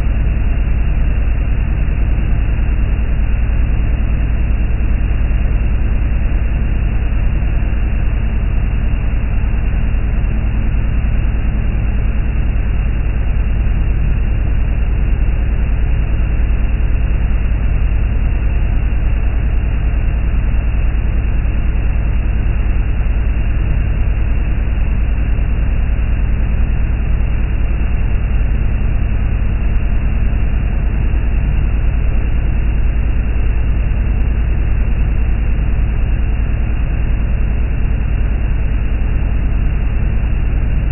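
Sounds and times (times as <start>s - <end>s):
motorboat engine drone: 0.0s - 40.9s.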